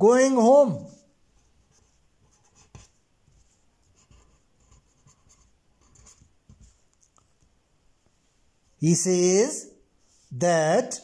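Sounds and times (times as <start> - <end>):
pen scratching on paper: 1.4 - 6.8.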